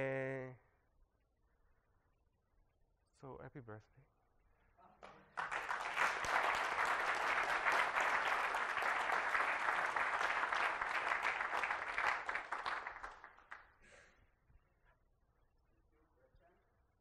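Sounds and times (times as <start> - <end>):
audience applauding: 5.3 - 13.7.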